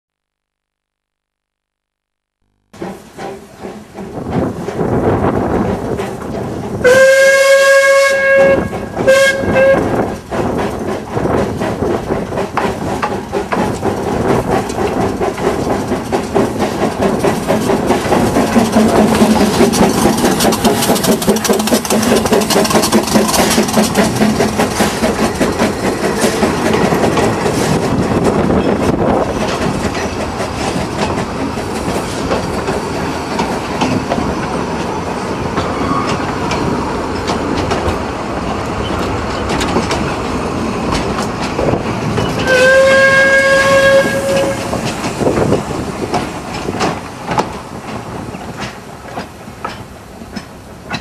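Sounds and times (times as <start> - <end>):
train rumble: 2.8 - 51.0
wheels clattering over rail joints: 2.8 - 51.0
steam whistle blasts: 6.8 - 9.9, 42.4 - 44.8.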